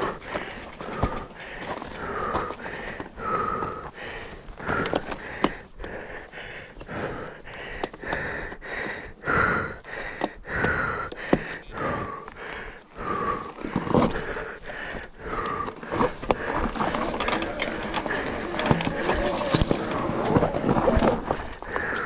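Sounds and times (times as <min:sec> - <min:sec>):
sharp clicks and knocks: 0:00.0 - 0:02.6
person panting hard: 0:00.0 - 0:22.0.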